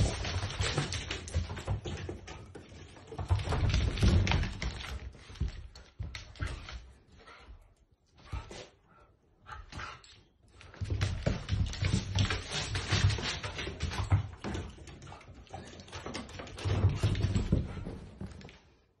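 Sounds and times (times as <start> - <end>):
dog paws scrambling on floor: 0.0 - 19.0.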